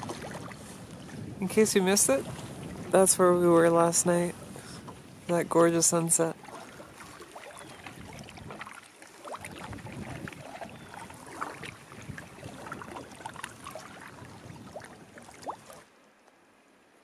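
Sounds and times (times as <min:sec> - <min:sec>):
water splashing against canoe hull: 0:00.0 - 0:16.4.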